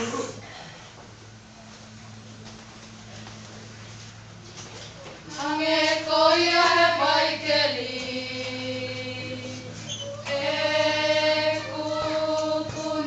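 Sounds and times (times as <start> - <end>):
group singing a hymn: 5.3 - 13.0.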